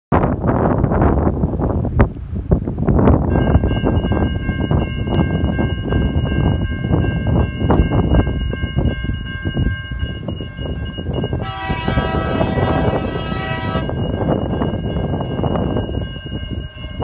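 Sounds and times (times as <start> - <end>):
locomotive horn blast: 11.3 - 13.9.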